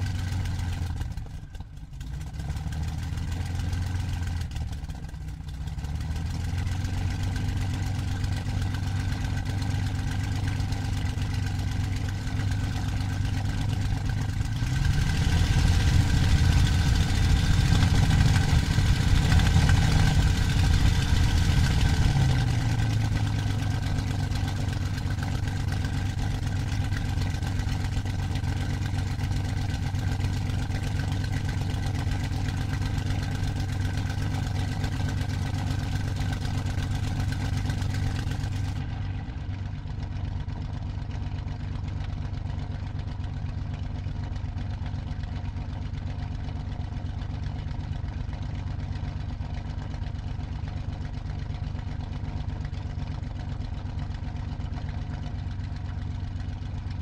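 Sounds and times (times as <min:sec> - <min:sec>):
aircraft piston engine running: 0:06.2 - 0:39.0.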